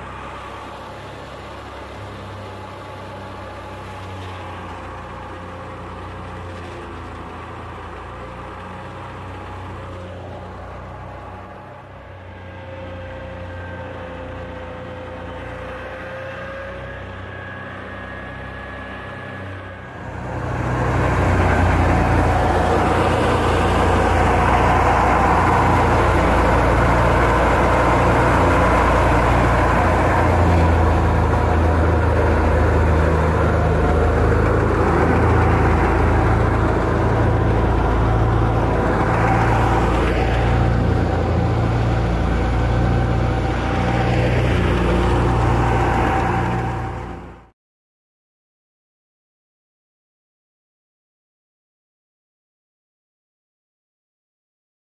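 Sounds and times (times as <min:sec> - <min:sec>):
engine running: 0:00.0 - 0:47.5
wheat thresher mechanical noise: 0:01.5 - 0:10.1, 0:19.4 - 0:47.2.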